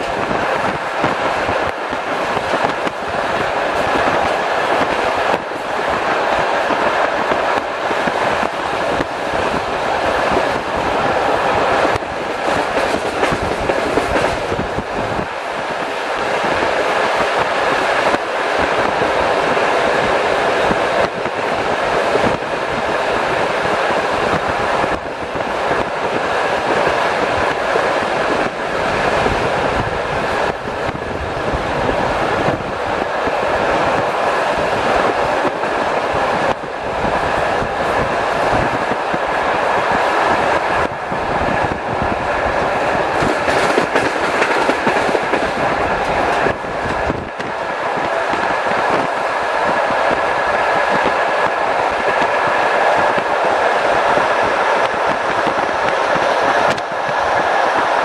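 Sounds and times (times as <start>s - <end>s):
train wheels rumbling on rails: 0.0s - 58.0s
wheels clicking over track: 43.1s - 49.2s.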